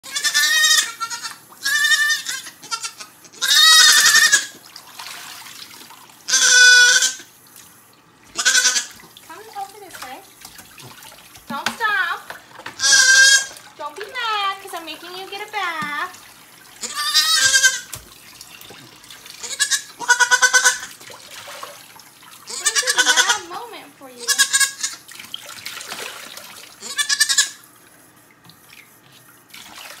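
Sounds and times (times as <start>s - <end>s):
young goat bleating: 0.1s - 4.6s, 6.3s - 7.2s, 8.4s - 9.0s, 12.8s - 13.5s, 16.8s - 17.9s, 19.4s - 20.9s, 22.5s - 23.5s, 24.2s - 25.0s, 26.8s - 27.6s
water running in sink: 2.5s - 30.0s.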